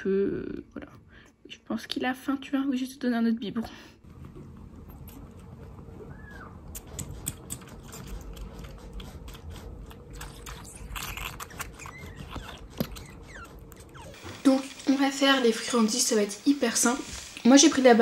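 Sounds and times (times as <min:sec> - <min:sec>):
kitten suckling wet clicks: 0:06.7 - 0:14.1.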